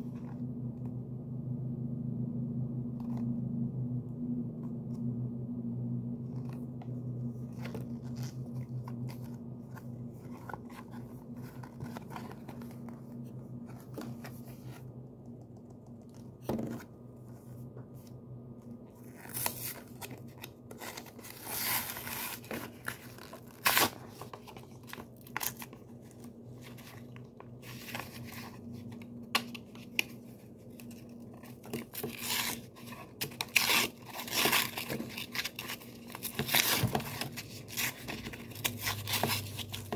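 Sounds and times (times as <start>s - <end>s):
card and plastic tearing: 19.0s - 25.8s, 30.8s - 39.9s.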